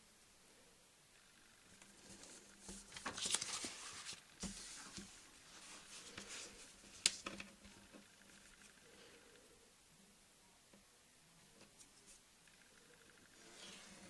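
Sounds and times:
scraping rustles on a table: 13.3 - 14.0.

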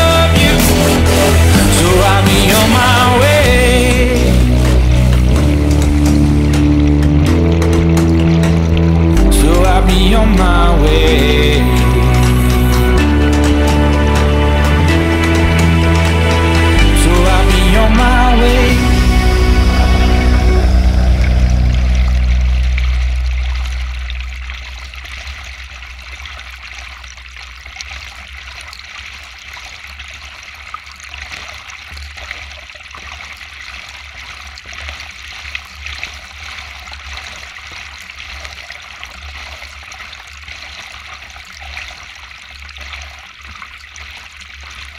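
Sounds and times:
low rumble: 0.0 - 28.1
water splashing along kayak hull: 18.9 - 44.9.

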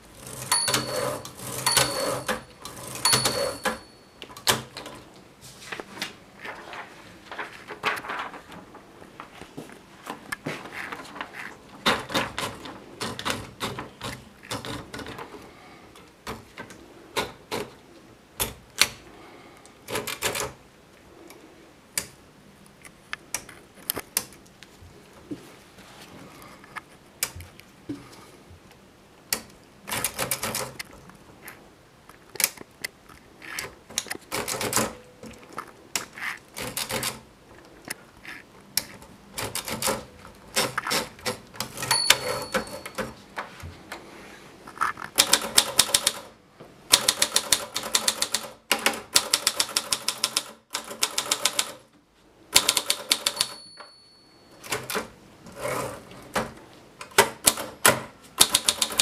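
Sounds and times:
typewriter typing: 0.1 - 5.1, 10.8 - 15.3, 16.2 - 17.8, 19.9 - 20.6, 29.3 - 31.0, 33.4 - 37.3, 38.3 - 43.2, 45.1 - 51.9, 52.5 - 53.9, 54.6 - 59.0
typewriter margin bell ringing: 0.3 - 4.6, 41.7 - 43.2, 52.6 - 54.9.

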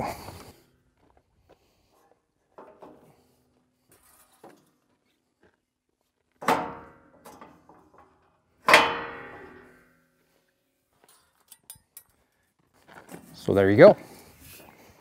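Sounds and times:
metal knocks and rattles: 6.4 - 9.9
loud metal clangs: 6.4 - 10.0.

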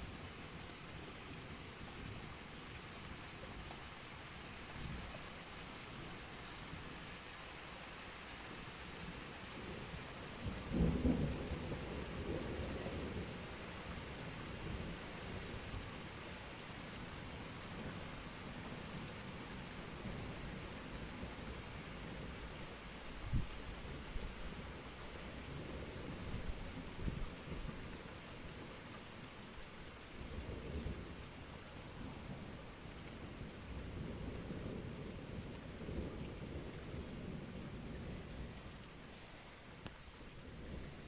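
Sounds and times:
steady rain: 0.0 - 41.0
low rumble of thunder: 10.4 - 13.4, 33.2 - 38.8.

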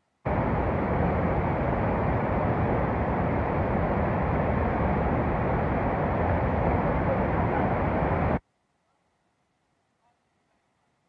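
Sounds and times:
river torrent rushing: 0.3 - 8.4.

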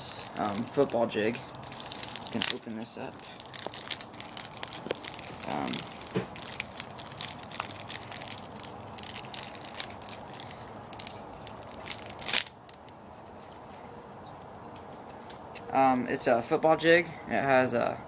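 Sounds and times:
plastic package crinkling: 0.0 - 12.9.

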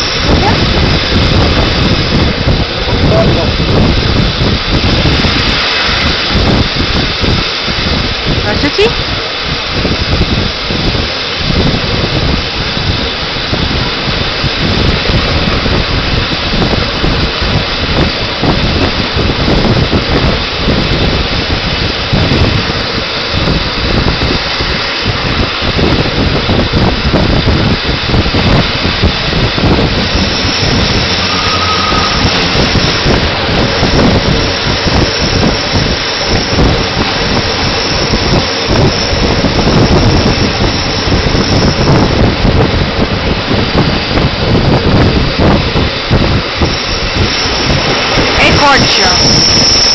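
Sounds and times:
train wheels rumbling on rails: 0.0 - 49.9
wind buffeting microphone: 0.0 - 49.9
thin high whine: 28.7 - 42.3, 46.4 - 49.9.

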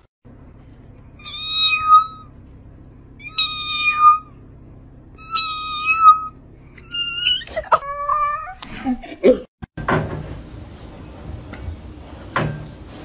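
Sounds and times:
cat meowing: 1.2 - 2.3, 3.2 - 4.3, 5.2 - 8.6.

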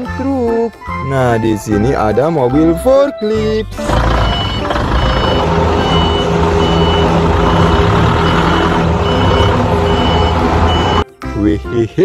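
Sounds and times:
forklift engine running: 3.8 - 11.0
back-up alarm beeping: 3.9 - 11.0.

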